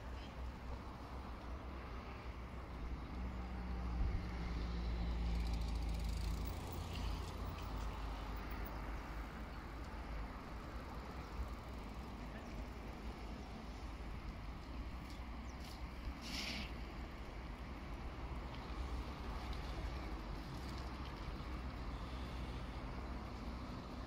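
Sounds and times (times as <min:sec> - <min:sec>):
outdoor background noise: 0:00.0 - 0:24.0
vehicle engine hum: 0:00.0 - 0:24.0.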